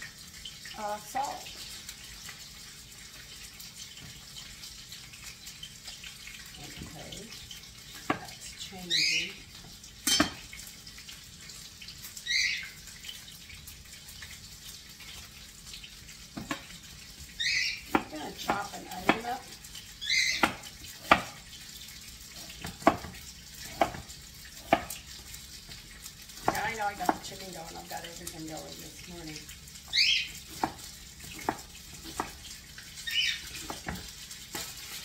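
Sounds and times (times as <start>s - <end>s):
knife chopping on wooden board: 16.4s - 16.6s, 17.9s - 19.3s, 20.4s - 21.4s, 22.4s - 24.1s, 30.5s - 32.4s.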